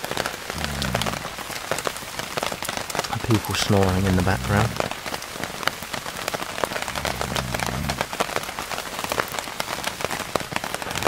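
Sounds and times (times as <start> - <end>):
heavy rain falling: 0.0 - 11.0
low snore: 0.5 - 1.4, 6.8 - 8.1.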